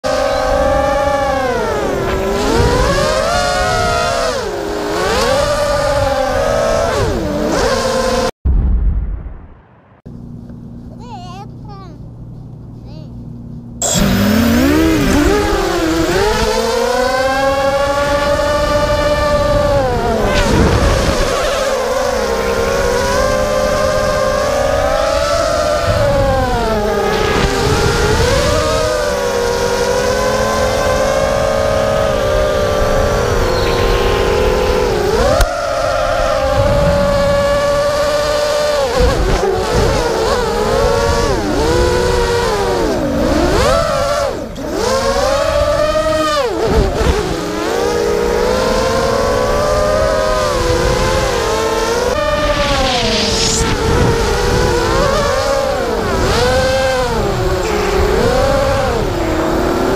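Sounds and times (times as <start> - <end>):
drone motors whining: 0.0 - 8.3, 10.1 - 59.9
short low rumble: 8.5 - 10.9.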